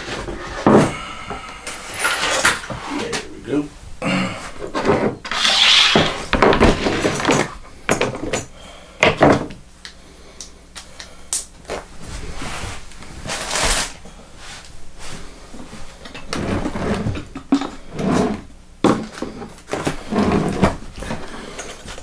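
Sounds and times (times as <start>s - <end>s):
tools knocking on wooden workbench: 6.0s - 9.6s
scraping rustles: 11.7s - 22.0s.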